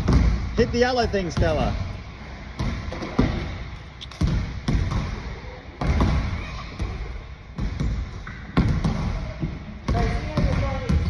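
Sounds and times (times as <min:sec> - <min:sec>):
basketball bouncing on hardwood floor: 0:00.0 - 0:00.4.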